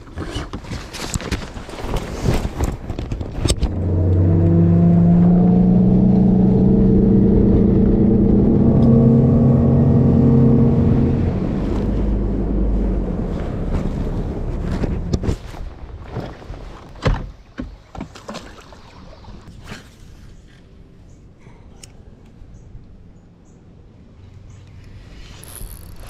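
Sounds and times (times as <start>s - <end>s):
outboard motor running: 3.5s - 15.4s.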